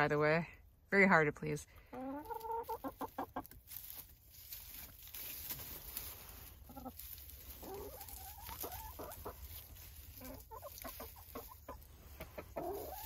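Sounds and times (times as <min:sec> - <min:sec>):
hens calling: 0:01.8 - 0:13.0
soft hen trills: 0:01.9 - 0:04.0, 0:05.4 - 0:13.0
pecking ticks and rustles in straw: 0:01.9 - 0:13.0.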